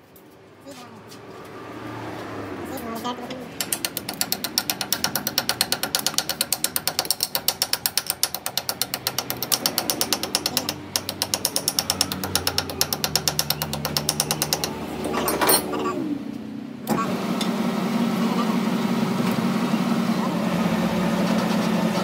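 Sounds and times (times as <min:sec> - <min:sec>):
metal lathe clicking: 0:03.6 - 0:15.2.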